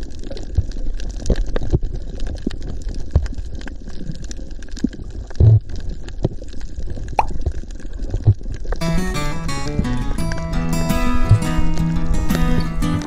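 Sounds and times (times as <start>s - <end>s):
underwater crackle of clicks: 0.0s - 8.8s
low water rumble: 0.0s - 9.2s.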